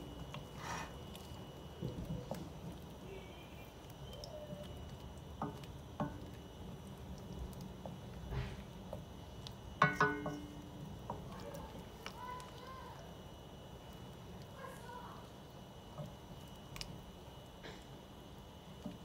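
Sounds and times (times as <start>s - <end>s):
spoon stirring onions in butter: 0.1s - 2.4s
spoon knocking metal pot: 9.8s - 10.5s.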